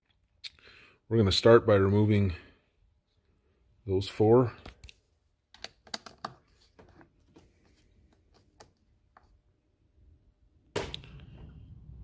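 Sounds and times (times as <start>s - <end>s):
steady low noise: 10.8s - 12.0s.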